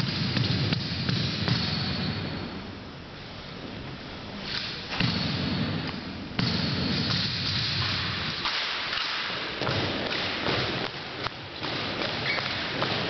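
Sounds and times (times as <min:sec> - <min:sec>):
rifles slapping and thudding: 0:04.4 - 0:13.0.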